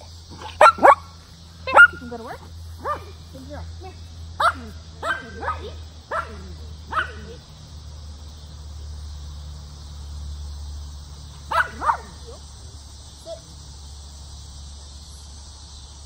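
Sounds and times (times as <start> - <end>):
dog barking: 0.4 - 2.1, 2.8 - 3.2, 4.4 - 7.4, 11.5 - 12.2.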